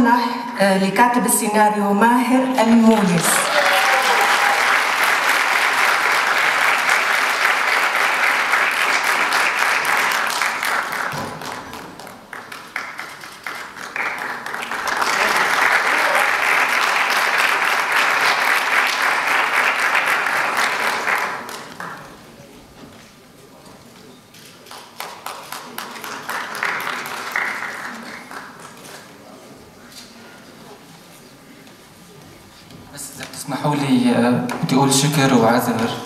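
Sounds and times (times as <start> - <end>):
audience applauding: 3.0 - 22.3, 24.5 - 29.2.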